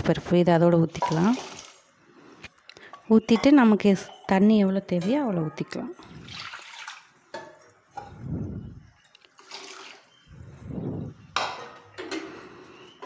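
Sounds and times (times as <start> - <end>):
water pouring into soup: 9.4 - 10.1.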